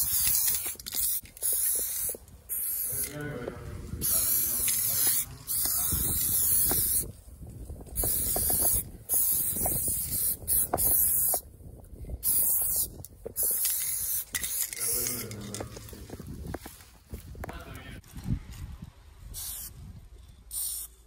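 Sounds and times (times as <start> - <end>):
spray paint can hissing: 0.0 - 3.2, 4.0 - 7.1, 7.9 - 11.5, 12.2 - 15.6, 19.3 - 19.8, 20.5 - 21.0.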